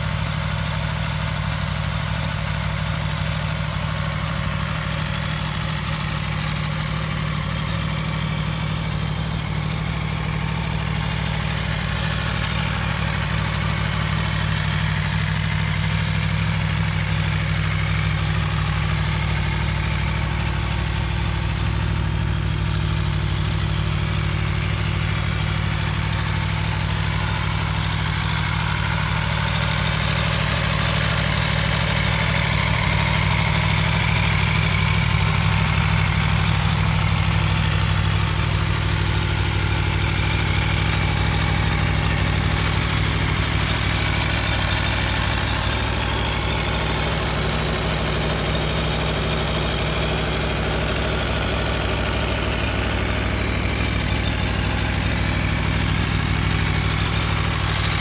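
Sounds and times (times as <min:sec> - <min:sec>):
motorcycle engine idling: 0:00.0 - 0:58.0.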